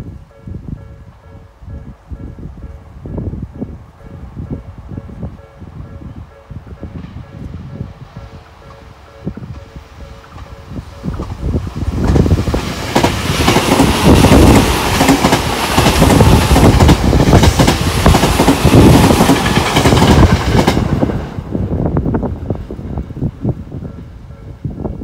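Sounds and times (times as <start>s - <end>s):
train wheels clattering over track: 9.4s - 21.3s.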